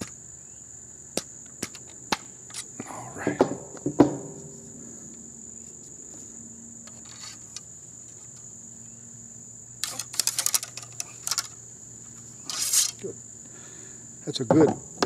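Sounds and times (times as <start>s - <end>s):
high insect trill: 0.0s - 15.0s
ramrod scraping in rifle barrel: 2.5s - 2.7s, 6.8s - 8.5s, 9.8s - 13.1s.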